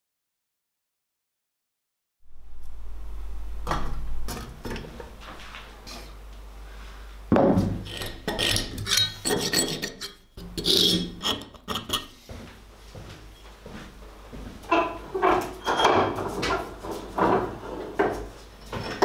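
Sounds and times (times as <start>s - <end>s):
axe head scraping on wood: 7.6s - 12.2s
scribe scratching metal: 7.8s - 12.1s.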